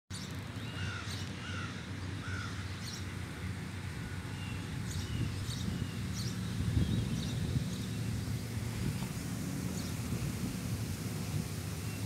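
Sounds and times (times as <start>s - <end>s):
birds calling: 0.1s - 12.0s
steady low rumble: 2.6s - 12.0s.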